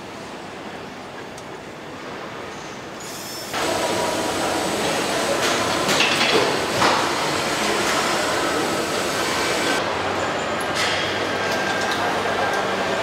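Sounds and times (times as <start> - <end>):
assembly line machinery noise: 0.0 - 13.0.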